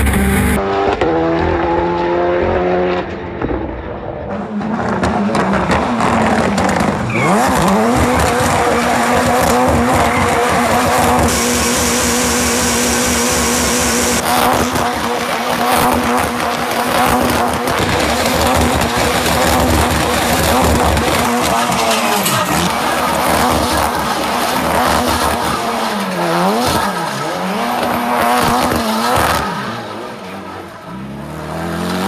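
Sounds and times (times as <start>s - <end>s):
car engine revving: 0.0s - 32.0s
tyres squealing and skidding: 6.2s - 13.1s, 14.0s - 32.0s.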